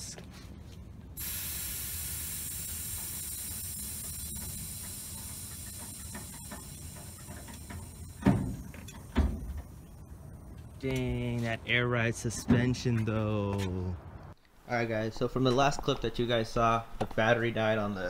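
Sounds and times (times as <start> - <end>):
air suspension hissing: 1.2 - 10.8.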